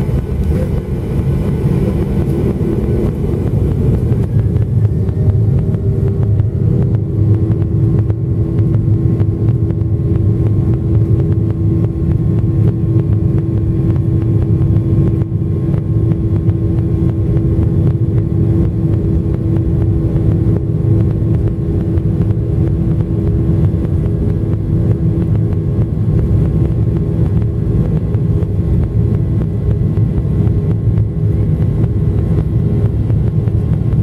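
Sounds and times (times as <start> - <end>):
jet engines at takeoff thrust: 0.0 - 34.0.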